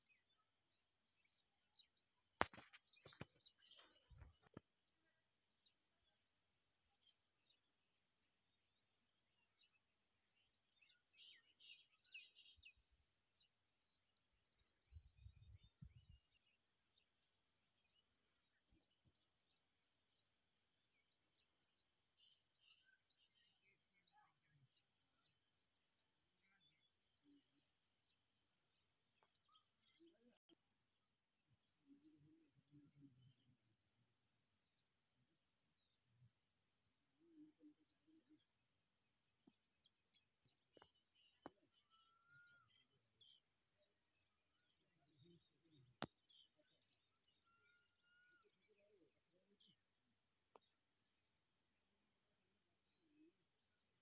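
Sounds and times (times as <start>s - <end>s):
bird chirps: 0.0s - 6.1s.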